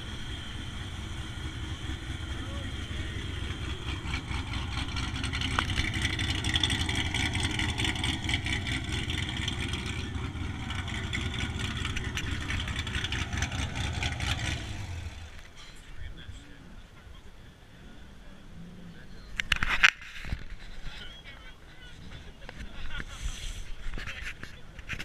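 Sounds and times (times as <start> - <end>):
car exhaust rumble: 0.0 - 16.9.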